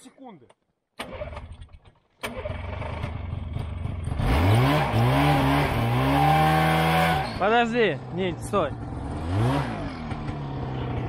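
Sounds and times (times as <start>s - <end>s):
snowmobile engine revving: 2.2s - 11.0s.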